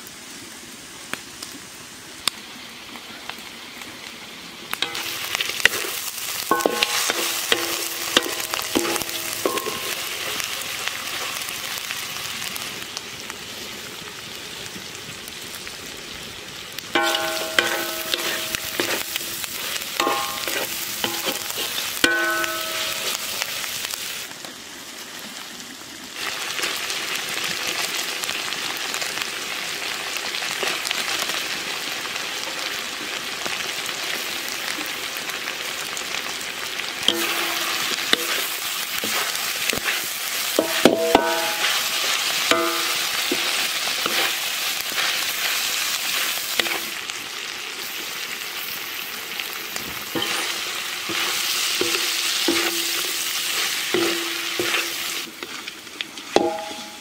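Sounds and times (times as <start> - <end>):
food sizzling in a wok: 0.0 - 57.0
spatula scraping and clinking on wok: 4.8 - 10.5, 17.0 - 23.8, 37.1 - 45.2, 46.1 - 46.9, 50.1 - 55.3, 56.4 - 57.0.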